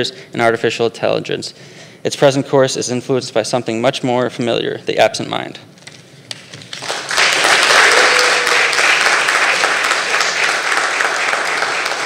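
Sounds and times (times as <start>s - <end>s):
audience applauding: 6.7s - 12.0s.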